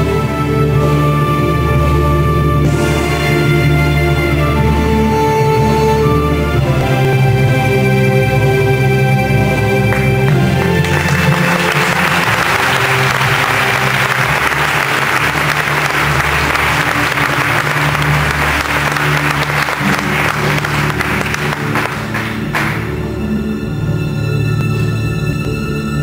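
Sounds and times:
music low sustained tones: 0:00.0 - 0:26.0
audience applause: 0:09.9 - 0:23.0.

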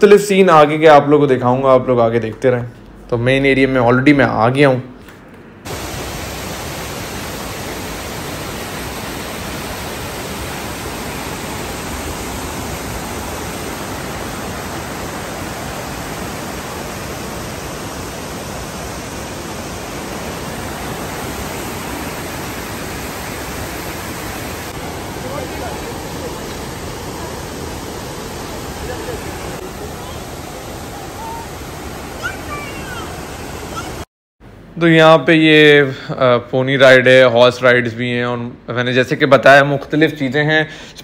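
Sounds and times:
waterfall rushing into pool: 0:05.7 - 0:34.1.

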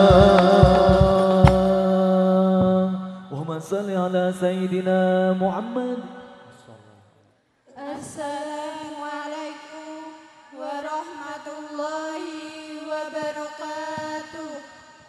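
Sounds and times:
women singing a cappella: 0:00.0 - 0:02.8, 0:07.7 - 0:15.0.

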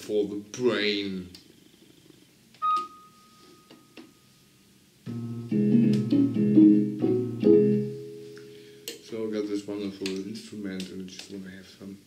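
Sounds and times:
electronic keyboard high note: 0:02.6 - 0:03.5
electronic keyboard chords: 0:05.1 - 0:08.6.

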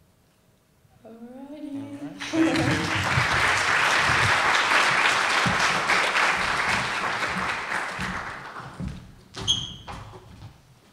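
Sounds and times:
audience applause: 0:02.1 - 0:09.0.

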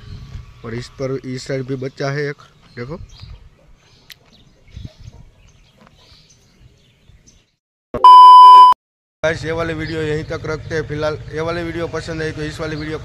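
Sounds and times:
loud electronic beep: 0:08.0 - 0:08.8.

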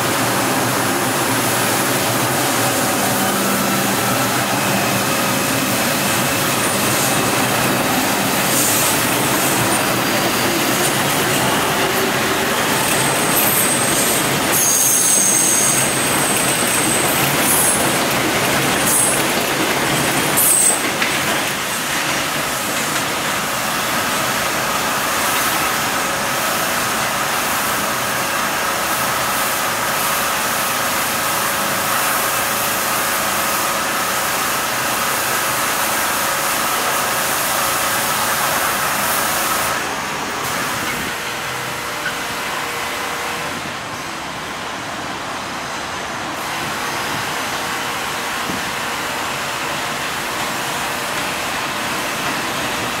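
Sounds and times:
subway train running: 0:00.0 - 0:53.0
high wheel squeal: 0:02.1 - 0:19.4, 0:20.0 - 0:21.1.

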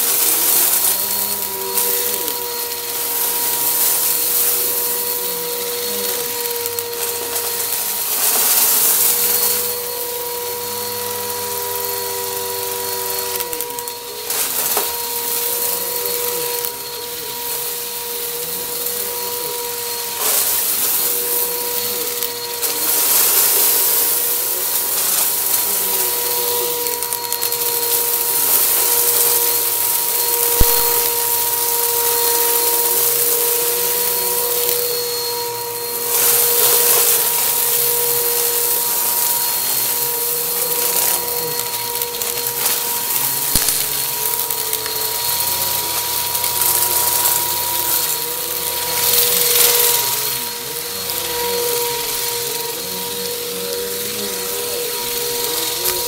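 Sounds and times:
debris rattling up nozzle: 0:00.0 - 0:56.0
vacuum cleaner motor whine: 0:00.0 - 0:56.0.

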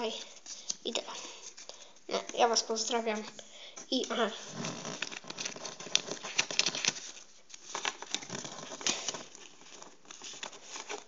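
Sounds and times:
fingers handling paper stickers: 0:04.0 - 0:11.0.

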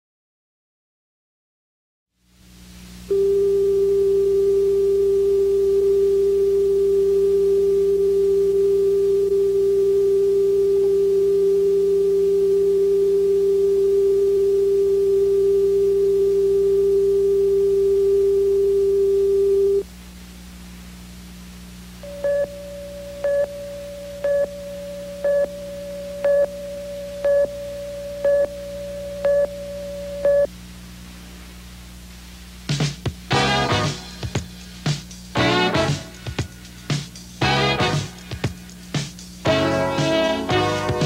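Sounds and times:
tape hiss: 0:02.2 - 0:41.0
low hum: 0:02.9 - 0:32.5
high countdown beep: 0:22.0 - 0:30.5.

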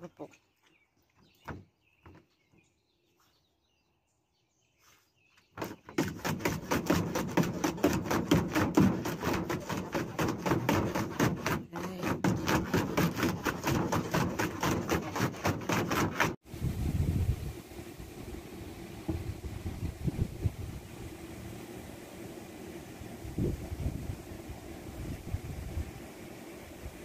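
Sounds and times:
dog clicking and scuffing in plastic pool: 0:04.8 - 0:16.4.

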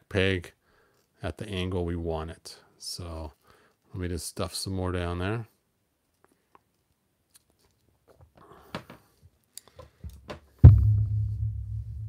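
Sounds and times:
loud thump on work surface: 0:10.6 - 0:12.0
low hum: 0:10.6 - 0:12.0.

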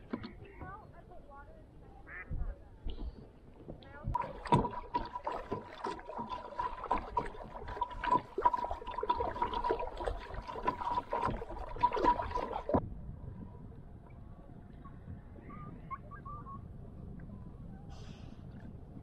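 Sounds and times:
small knocks and drips: 0:02.9 - 0:12.8
paddle splashing in water: 0:04.1 - 0:12.8.

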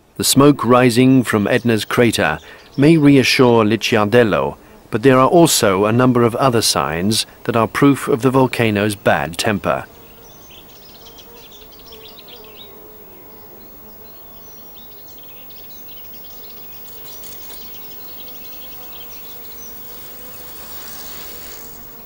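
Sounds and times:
birds chirping: 0:00.0 - 0:22.0
insects buzzing: 0:00.0 - 0:22.0.

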